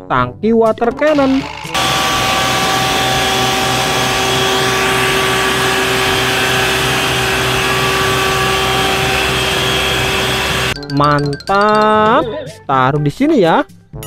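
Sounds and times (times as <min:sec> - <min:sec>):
truck engine and pump humming: 0:01.1 - 0:10.8.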